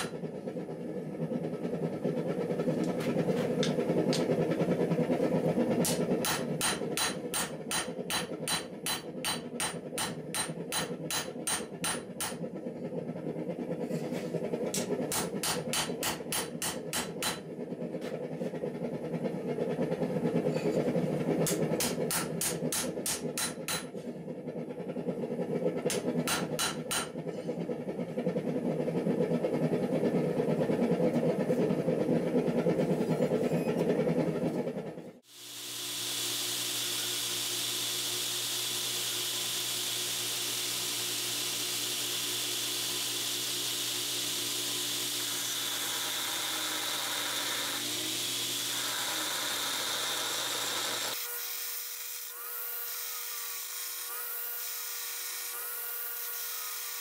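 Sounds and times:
hammer striking anvil: 0:05.8 - 0:12.4, 0:14.8 - 0:17.5, 0:21.4 - 0:24.0, 0:25.9 - 0:27.2
belt grinder grinding blade: 0:35.3 - 0:57.0.

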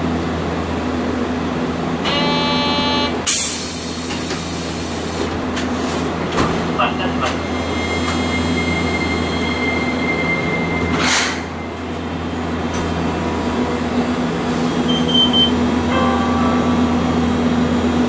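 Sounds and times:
tram motors and wheels rumbling: 0:00.0 - 0:18.0.

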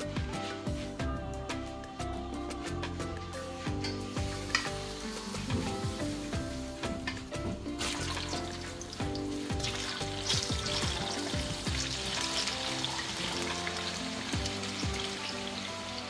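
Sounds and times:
oil sizzling in frying pan: 0:03.8 - 0:16.0.

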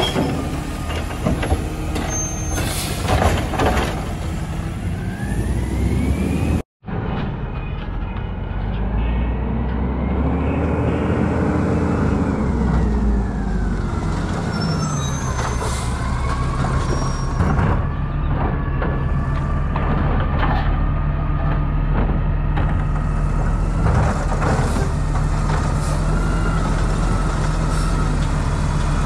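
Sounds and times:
high brake squeals: 0:00.0 - 0:00.4, 0:02.0 - 0:03.0, 0:14.5 - 0:17.4
garbage truck engine: 0:00.0 - 0:29.0.

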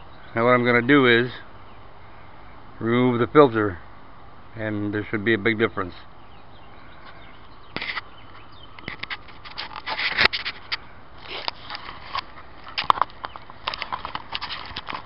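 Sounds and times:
foam scraping on microphone: 0:08.9 - 0:12.2.

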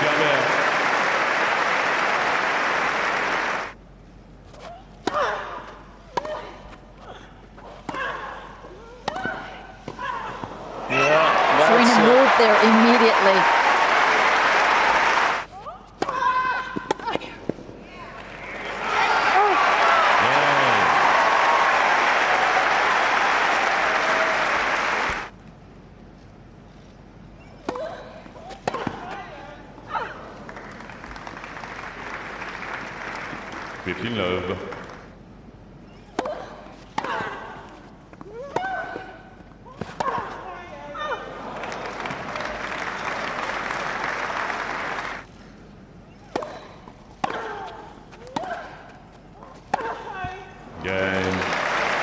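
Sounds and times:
crowd applauding: 0:00.0 - 0:03.8, 0:10.8 - 0:15.5, 0:18.6 - 0:25.3, 0:30.4 - 0:35.1, 0:41.4 - 0:45.3, 0:50.8 - 0:52.0
racket striking tennis ball: 0:46.2 - 0:49.0.

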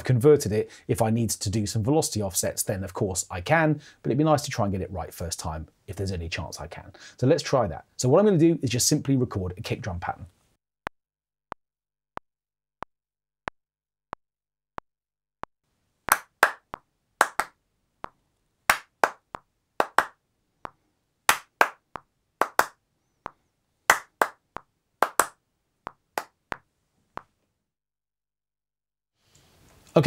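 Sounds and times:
hand claps: 0:16.1 - 0:17.5, 0:18.7 - 0:20.2, 0:21.3 - 0:21.8, 0:22.4 - 0:24.4, 0:25.0 - 0:25.4, 0:26.2 - 0:26.6.

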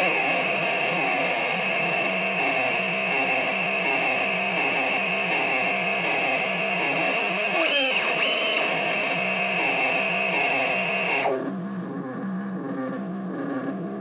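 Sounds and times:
low pulsing synthesizer buzz: 0:00.0 - 0:14.0
high whistling synthesizer tone: 0:07.6 - 0:11.4.

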